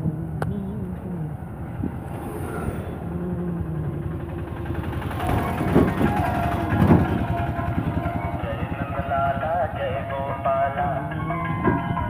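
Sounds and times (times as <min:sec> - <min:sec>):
motorcycle engines on road: 0:00.0 - 0:12.0.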